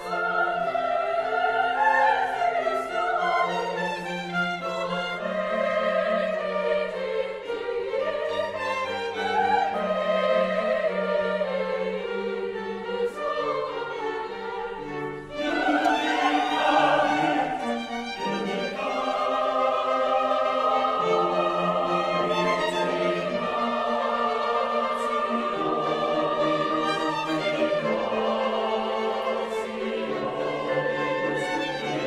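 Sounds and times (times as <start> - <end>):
mixed choir singing: 0.0 - 32.0
string orchestra: 0.0 - 32.0.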